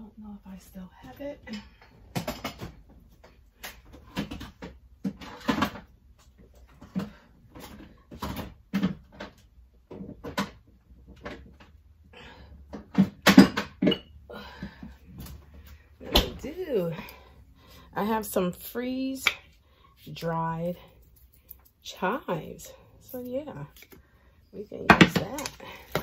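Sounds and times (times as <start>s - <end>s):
cupboard doors opening and closing: 16.0s - 16.5s.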